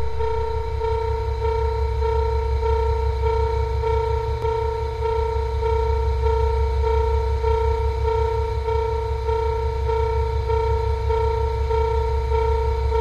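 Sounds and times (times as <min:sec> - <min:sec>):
steady low rumble: 0:00.0 - 0:05.2
level crossing alarm beeping: 0:00.0 - 0:13.0.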